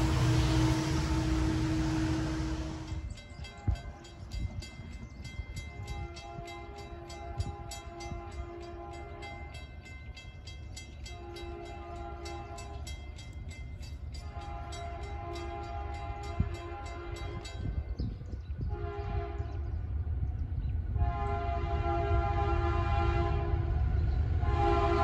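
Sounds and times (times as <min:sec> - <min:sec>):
train horn blasts: 0:00.0 - 0:03.1, 0:05.7 - 0:09.6, 0:11.1 - 0:12.9, 0:14.2 - 0:17.7, 0:18.6 - 0:19.8, 0:20.9 - 0:25.0
crossing bell ringing: 0:00.0 - 0:18.3.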